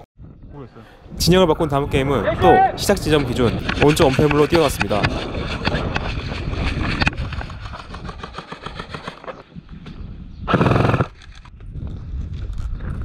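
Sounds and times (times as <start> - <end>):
quick footsteps: 3.1 - 9.9.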